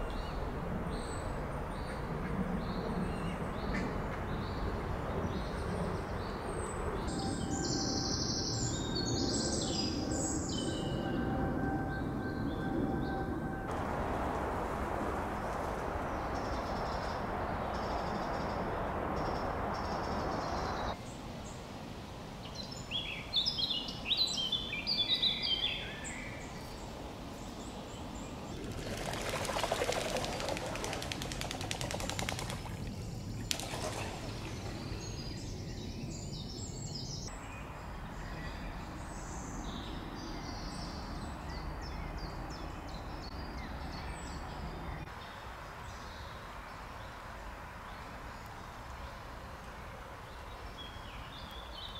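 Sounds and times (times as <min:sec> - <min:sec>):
rushing noise: 0:13.6 - 0:21.0.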